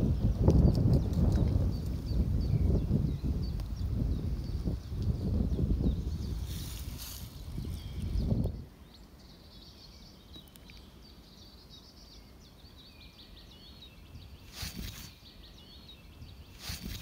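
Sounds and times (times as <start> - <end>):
wind rumble on microphone: 0.0 - 8.8, 14.0 - 17.0
songbird twittering: 0.0 - 17.0.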